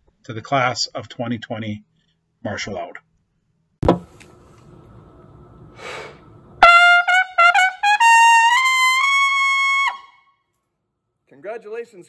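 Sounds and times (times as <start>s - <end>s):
solo trumpet: 6.6s - 10.4s.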